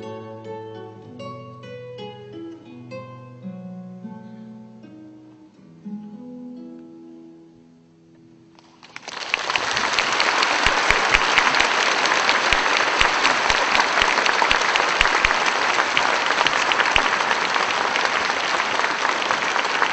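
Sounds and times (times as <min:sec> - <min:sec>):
audience applauding: 0:08.6 - 0:19.9.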